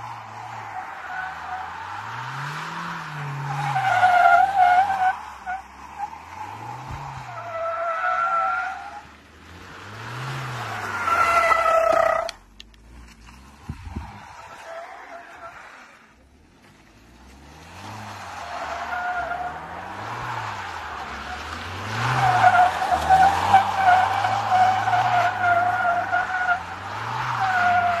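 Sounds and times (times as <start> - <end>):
tyres squealing on asphalt: 0.0 - 12.6, 13.4 - 28.0
car engine revving: 8.1 - 28.0.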